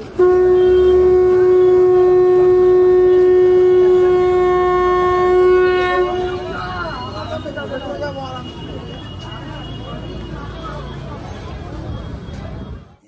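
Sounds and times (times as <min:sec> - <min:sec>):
conch shell blown: 0:00.0 - 0:07.2.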